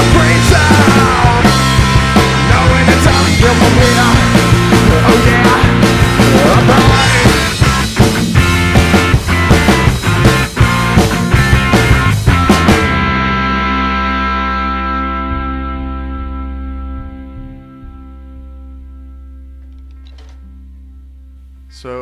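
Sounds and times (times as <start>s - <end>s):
person singing lead vocal: 0.0s - 7.9s
rock band playing live: 0.0s - 19.1s
electric guitar: 0.0s - 21.5s.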